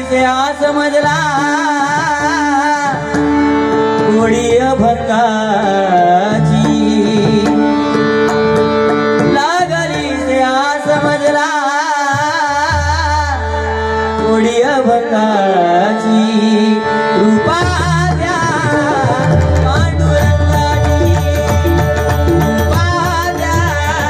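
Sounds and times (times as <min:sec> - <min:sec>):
man singing devotional song: 0:00.0 - 0:24.0
hand drum: 0:17.6 - 0:24.0.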